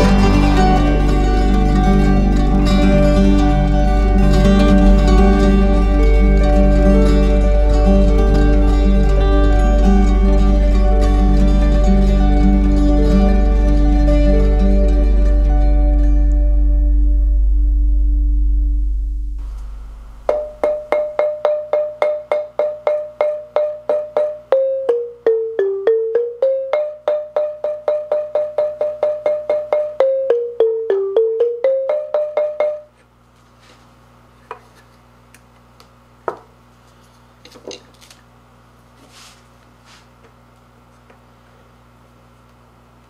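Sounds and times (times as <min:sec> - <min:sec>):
mallet striking marimba keys: 0:00.0 - 0:13.4, 0:20.3 - 0:32.9.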